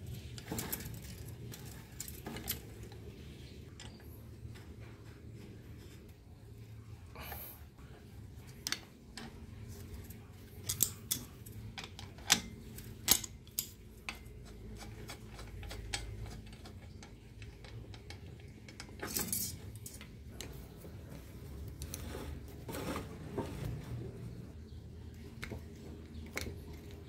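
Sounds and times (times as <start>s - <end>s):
scraping rattle: 0.1s - 3.1s
metal tools clinking on bicycle crank: 10.1s - 14.2s, 14.8s - 20.1s.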